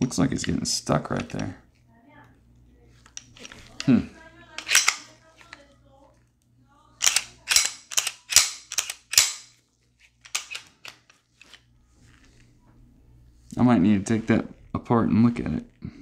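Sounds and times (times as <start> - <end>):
pistol slide metallic clicks: 4.6 - 5.1, 7.0 - 9.5, 10.2 - 11.6.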